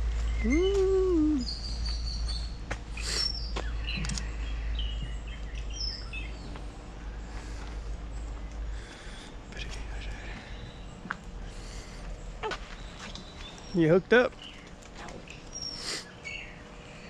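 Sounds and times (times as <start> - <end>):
hum rising and falling in pitch: 0.0 - 7.4
steady low rumble: 0.0 - 15.6
birds chirping and whistling: 0.2 - 17.0.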